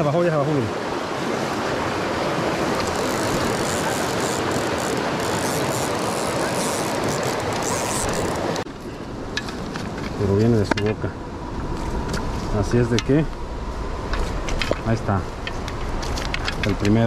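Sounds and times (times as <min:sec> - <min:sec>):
creek water rushing over rocks: 0:00.0 - 0:08.7
fishing reel whirring: 0:02.8 - 0:08.6.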